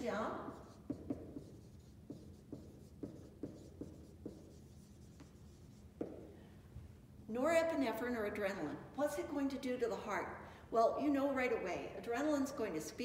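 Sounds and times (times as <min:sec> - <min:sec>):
marker writing on whiteboard: 0:00.0 - 0:06.4.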